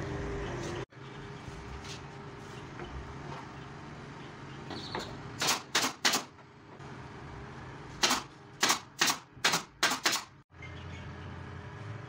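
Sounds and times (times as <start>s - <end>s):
hammer nailing wood: 5.4s - 6.4s, 8.0s - 10.4s.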